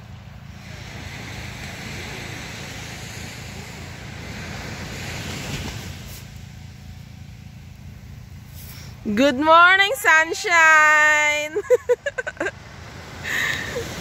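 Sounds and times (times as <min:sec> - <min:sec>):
wind rumbling on microphone: 0:00.0 - 0:07.5
small waves washing onto shore: 0:00.0 - 0:09.0, 0:11.5 - 0:14.0.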